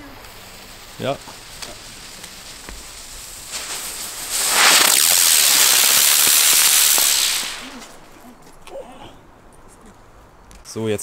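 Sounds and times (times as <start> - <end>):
firework motor hissing: 0.0 - 8.2
faint firework crackles: 0.0 - 11.0.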